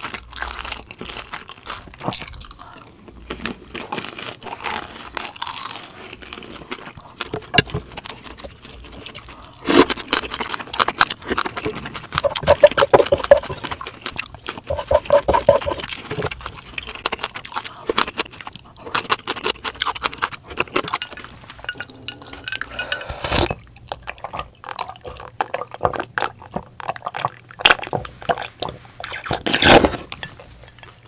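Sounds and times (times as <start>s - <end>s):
wet chewing: 0.0s - 31.0s
person sipping broth: 20.8s - 25.4s.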